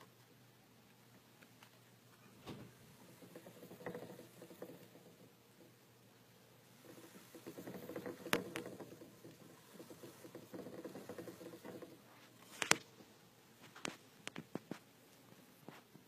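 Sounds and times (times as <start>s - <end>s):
hamster feet pattering: 0.0s - 16.0s
plastic wheel rattling: 2.7s - 5.8s, 6.6s - 12.9s.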